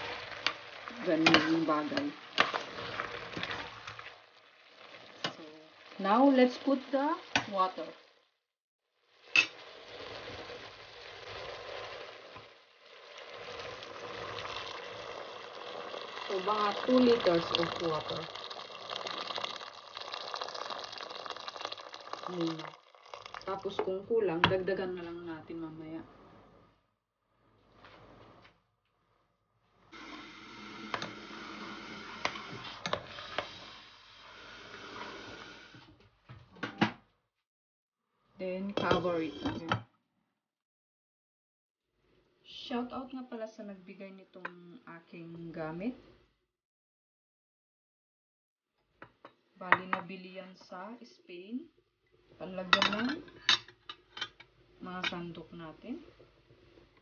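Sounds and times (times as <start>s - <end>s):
water sizzling in hot pan: 0.0s - 8.4s, 9.0s - 24.0s, 29.9s - 35.9s
soup sloshing in a pot: 9.1s - 23.8s.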